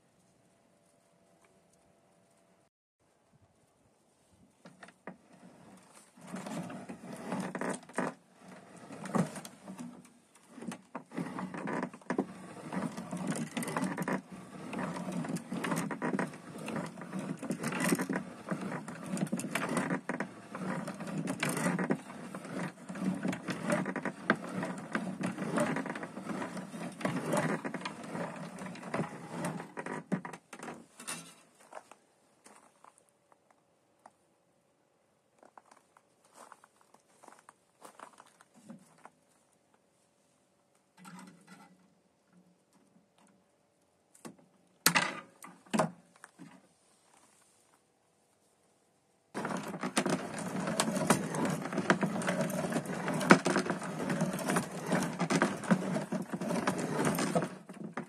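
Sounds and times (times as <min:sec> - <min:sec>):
wire scraping and rattling in machine: 0:04.8 - 0:31.5, 0:49.4 - 0:58.0.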